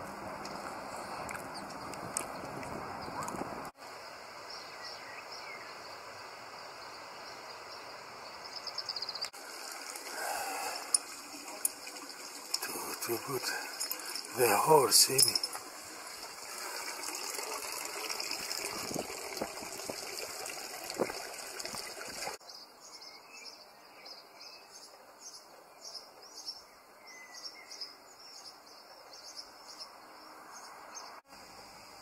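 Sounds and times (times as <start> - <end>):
small songbirds chirping: 0.4 - 9.4, 22.4 - 31.2.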